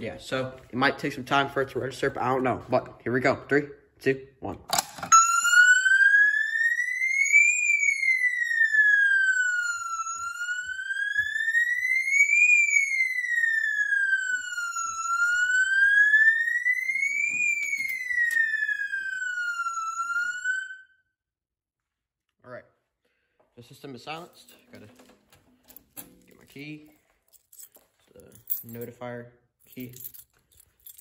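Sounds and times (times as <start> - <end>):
fire alarm siren sweeping: 0.0 - 3.0, 5.0 - 21.2.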